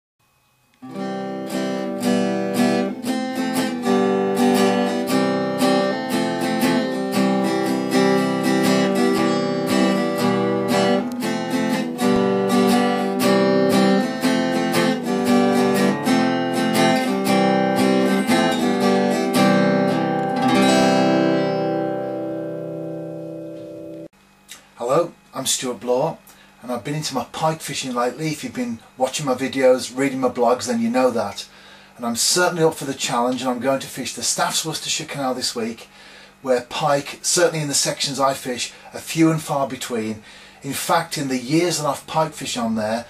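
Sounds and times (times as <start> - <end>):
acoustic guitar plucked and strummed: 0.8 - 24.1.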